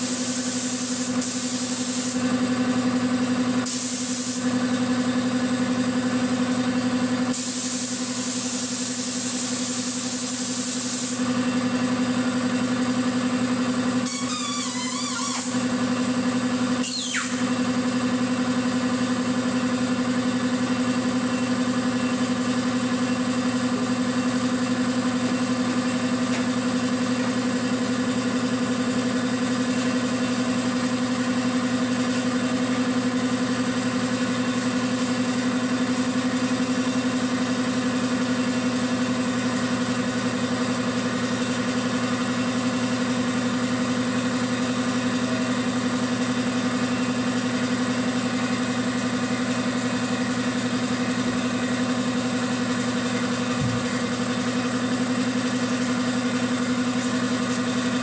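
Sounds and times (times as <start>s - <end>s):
compressed air hissing: 0.0s - 2.2s, 3.7s - 4.4s, 7.3s - 11.2s
air compressor motor hum: 0.0s - 58.0s.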